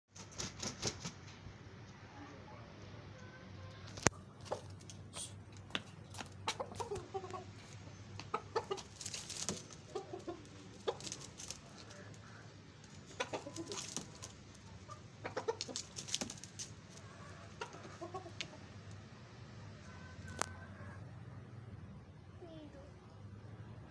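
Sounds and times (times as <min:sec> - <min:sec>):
chickens clucking softly: 0:01.9 - 0:21.9
beaks pecking concrete floor: 0:03.2 - 0:19.0.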